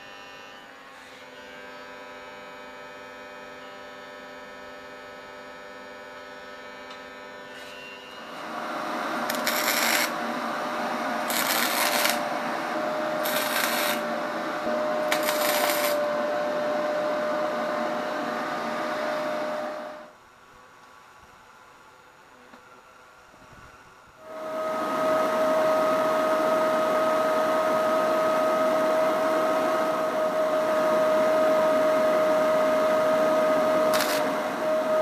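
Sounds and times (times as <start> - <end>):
steady electrical hum: 0.0 - 35.0
arc welding crackling and sizzling: 8.2 - 16.2, 32.2 - 35.0.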